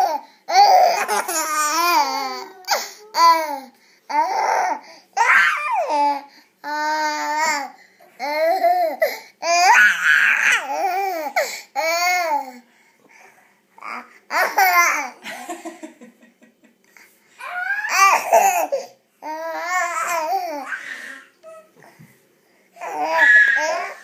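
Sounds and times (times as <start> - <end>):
baby babbling: 17.4 - 21.8.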